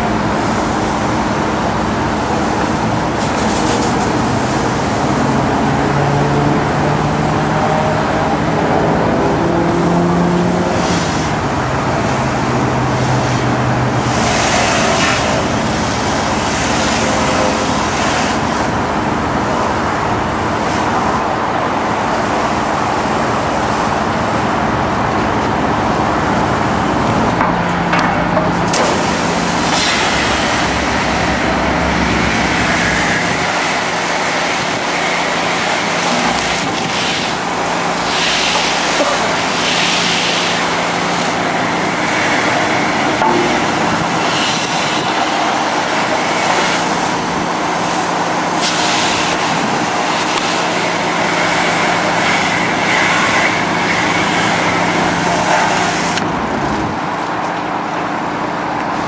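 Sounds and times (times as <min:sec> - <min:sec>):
pressure washer motor humming: 0:00.0 - 0:58.9
pressure washer spray hissing: 0:12.9 - 0:18.8, 0:28.8 - 0:56.2.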